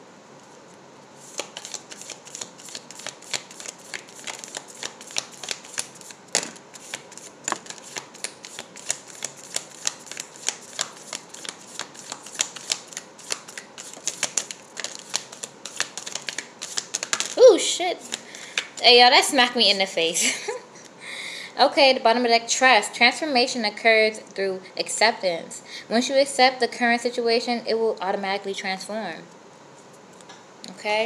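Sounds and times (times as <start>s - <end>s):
cards being shuffled: 0.4s - 20.0s.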